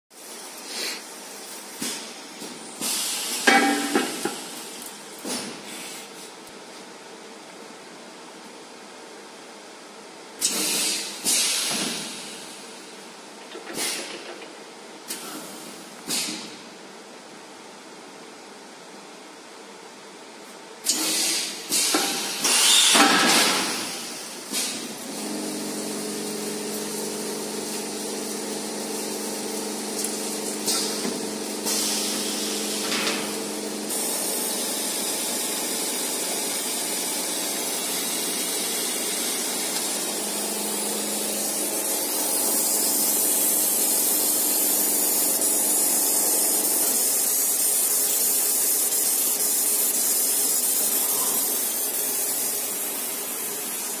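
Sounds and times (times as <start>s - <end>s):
steady motor hum: 22.5s - 54.0s.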